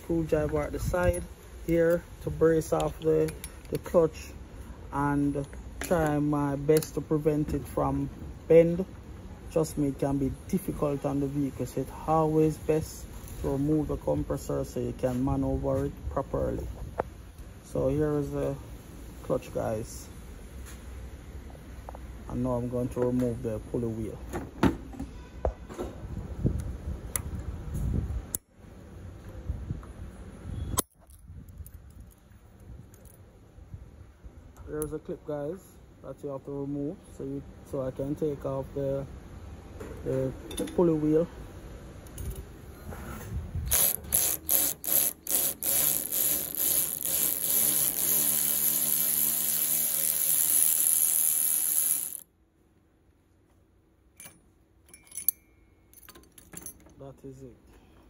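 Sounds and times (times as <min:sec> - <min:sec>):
power wrench running: 0:43.7 - 0:52.2.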